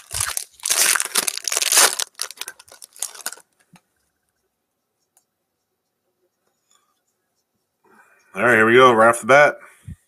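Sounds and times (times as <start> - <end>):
packaging rustling and crinkling: 0.0 - 3.8.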